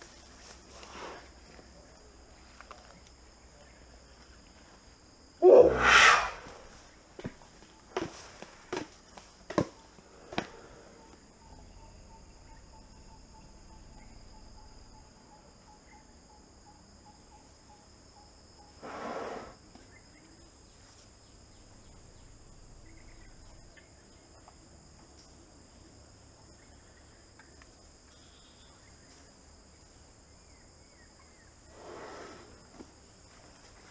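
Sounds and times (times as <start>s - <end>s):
insects trilling: 0.0s - 33.9s
rough rushing noise: 5.4s - 6.8s.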